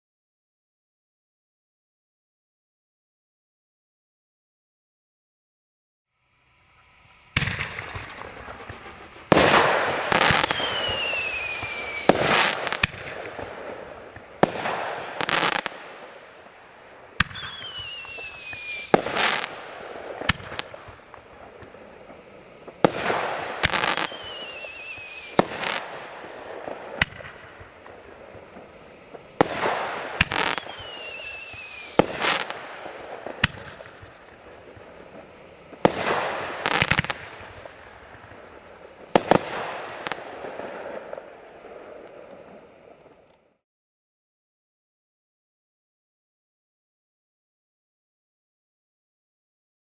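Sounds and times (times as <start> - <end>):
firework crackling: 6.4 - 43.6
firework reports: 7.2 - 43.3
falling whistle: 10.2 - 12.2, 17.3 - 19.0, 23.8 - 25.4, 30.3 - 32.1.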